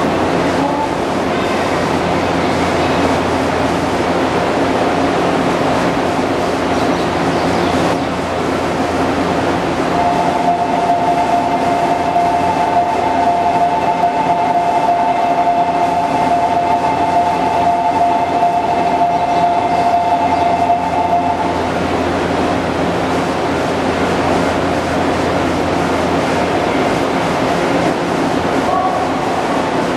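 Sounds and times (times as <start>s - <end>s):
train equipment humming: 0.0s - 29.9s
two-note electronic tone: 10.0s - 21.5s.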